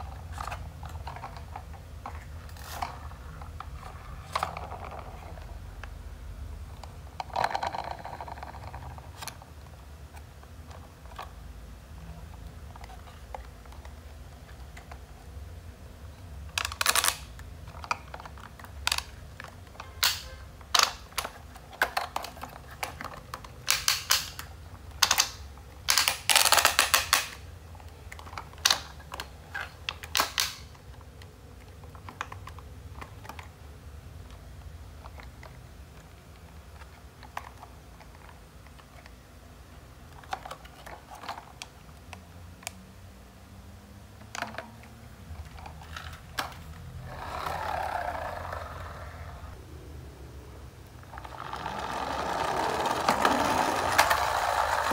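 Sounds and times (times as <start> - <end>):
plastic toy clicking and clattering: 0.1 - 5.5, 6.8 - 9.6, 16.4 - 33.6, 36.7 - 39.1, 40.1 - 41.8, 44.2 - 49.1, 51.0 - 54.9.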